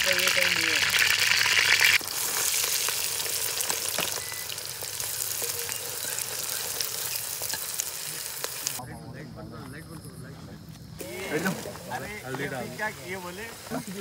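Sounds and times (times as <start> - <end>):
vegetables sizzling in oil: 0.0 - 8.8, 11.0 - 14.0.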